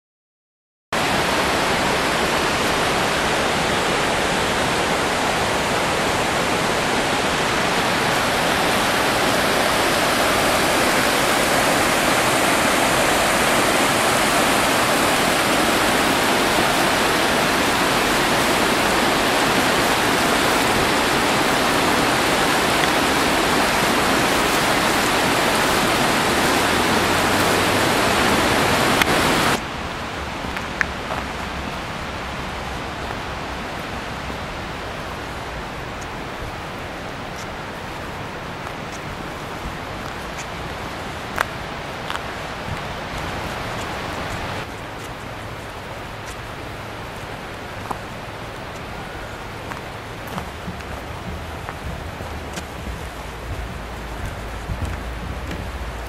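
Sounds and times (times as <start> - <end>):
river rushing over rocks: 1.0 - 56.0.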